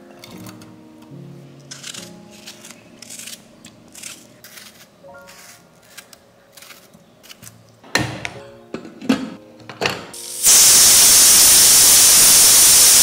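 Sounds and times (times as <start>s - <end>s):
pressure cooker whistle hissing: 10.2s - 13.0s.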